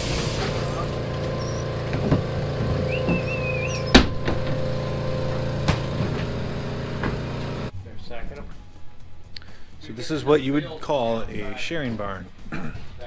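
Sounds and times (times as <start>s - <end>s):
shearing machinery humming: 0.0s - 7.7s
short wavering squeak: 1.1s - 1.8s, 2.8s - 4.0s.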